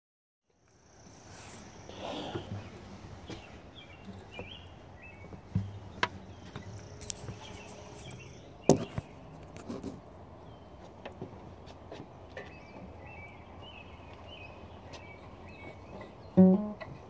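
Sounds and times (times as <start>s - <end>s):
birds chirping faintly: 0.5s - 17.0s.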